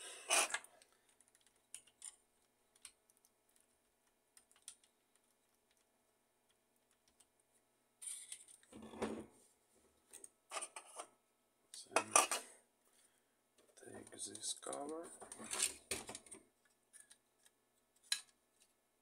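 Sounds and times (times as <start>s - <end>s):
plastic parts clicking: 0.4s - 3.3s.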